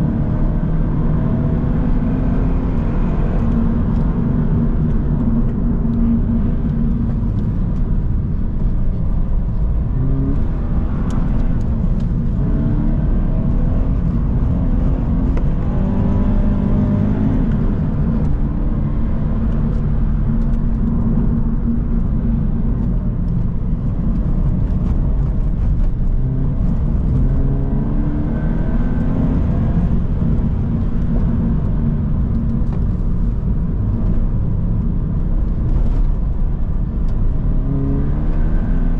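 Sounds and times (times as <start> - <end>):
car engine revving: 0.0 - 38.9
road and tyre rumble: 0.0 - 38.9.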